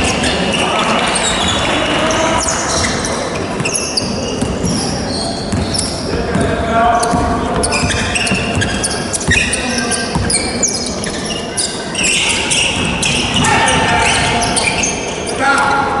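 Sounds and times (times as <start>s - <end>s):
sneakers squeaking on court: 0.0s - 15.8s
basketball bouncing on hardwood floor: 5.5s - 9.5s, 10.1s - 10.5s.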